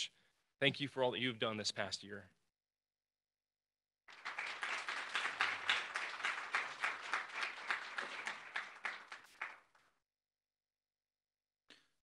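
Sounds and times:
audience applauding: 0:04.1 - 0:09.9.

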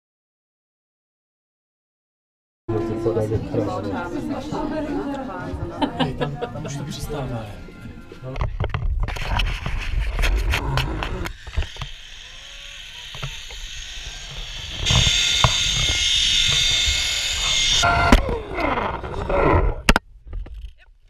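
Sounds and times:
zipline pulleys whirring: 0:09.2 - 0:19.2.

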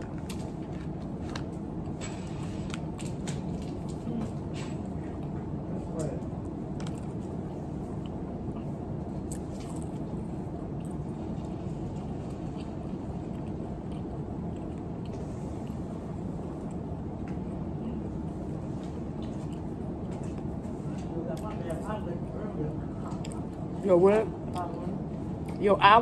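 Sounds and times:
steady low hum: 0:00.0 - 0:26.0
person chewing food: 0:06.4 - 0:20.8, 0:23.0 - 0:23.7.

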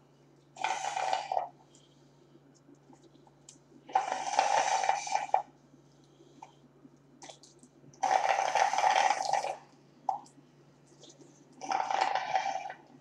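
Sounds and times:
slurping through a plastic straw: 0:00.6 - 0:01.6, 0:03.9 - 0:05.5, 0:08.0 - 0:09.6, 0:11.0 - 0:13.0.

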